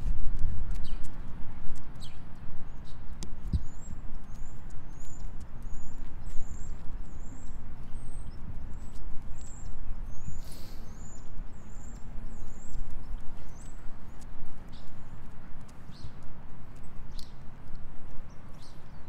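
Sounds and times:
wind buffeting microphone: 0.0 - 10.4, 11.0 - 19.0
small bird chirping: 0.7 - 1.2, 1.8 - 19.0
light clicks: 11.8 - 19.0.

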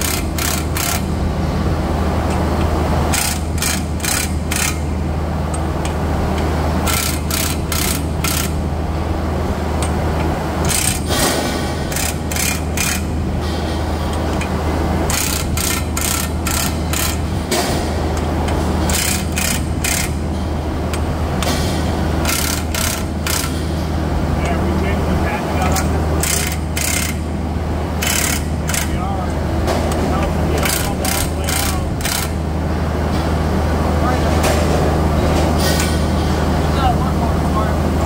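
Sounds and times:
low machinery hum: 0.0 - 38.0
power wrench bursts: 3.1 - 4.8, 22.2 - 23.6, 26.2 - 27.2, 28.0 - 28.9.

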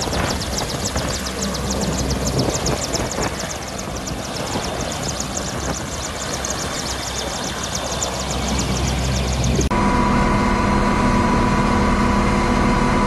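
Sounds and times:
helicopter blades chopping: 0.0 - 9.7
helicopter turbine roar: 0.0 - 13.0.

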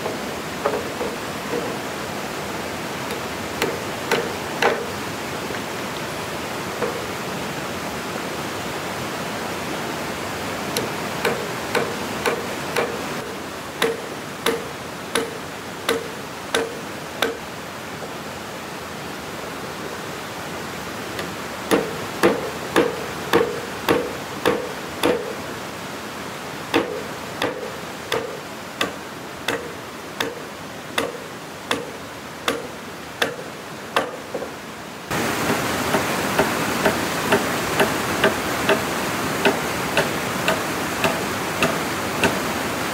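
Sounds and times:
hammer striking wood: 0.0 - 1.8, 3.6 - 4.9, 6.8 - 7.0, 10.8 - 17.4, 21.2 - 25.4, 26.7 - 30.4, 31.0 - 33.4, 34.0 - 34.4, 35.5 - 38.8, 39.4 - 42.4.

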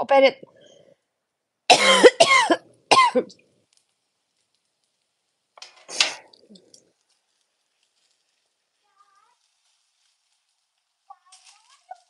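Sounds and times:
faint sizzling of food: 0.1 - 1.7, 2.5 - 12.0
metal spatula scraping griddle: 5.6 - 6.4.

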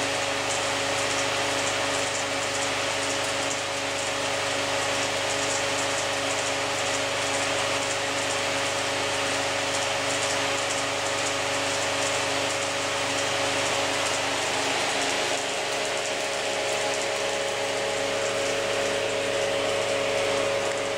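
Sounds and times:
projector whirring hiss: 0.0 - 20.9
steady hum: 13.9 - 20.9.

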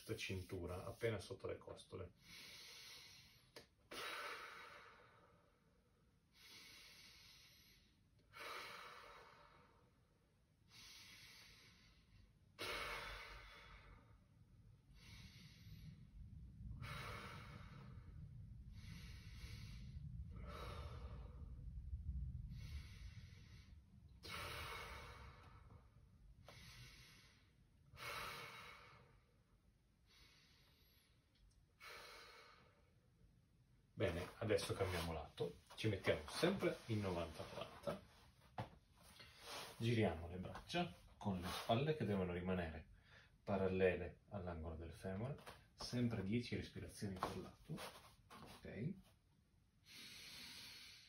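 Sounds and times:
man breathing deeply: 2.2 - 10.0, 10.7 - 33.0, 49.8 - 51.0
low rumble: 14.0 - 27.5.

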